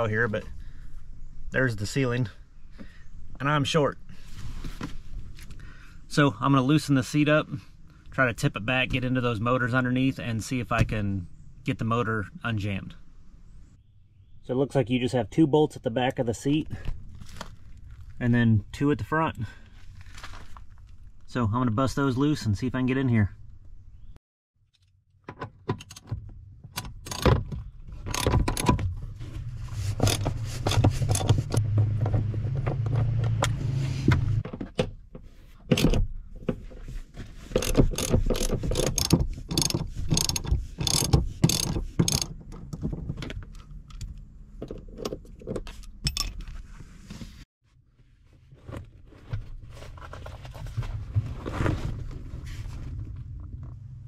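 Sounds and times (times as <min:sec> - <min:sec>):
socket ratchet clicking: 0:37.6 - 0:42.3.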